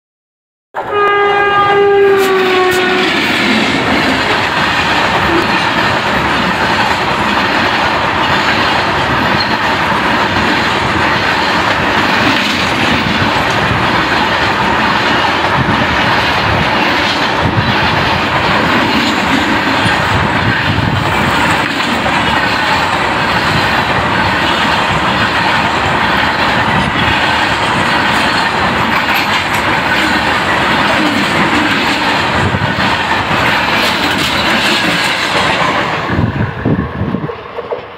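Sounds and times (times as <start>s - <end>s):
train horn: 0.8s - 3.4s, 5.2s - 5.6s
freight train wheels rumbling: 0.8s - 37.9s
wheels clacking over rail joints: 2.5s - 36.2s.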